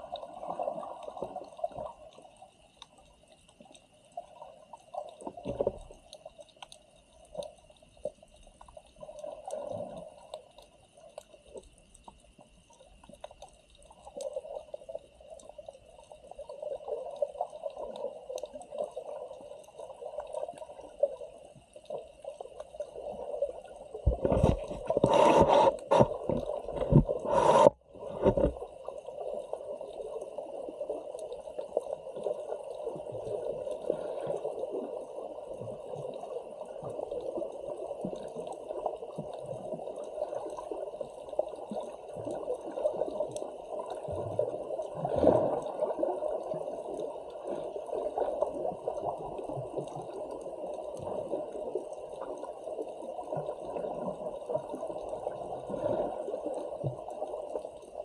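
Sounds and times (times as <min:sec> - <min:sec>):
muffled underwater gurgling: 0:23.0 - 0:58.0.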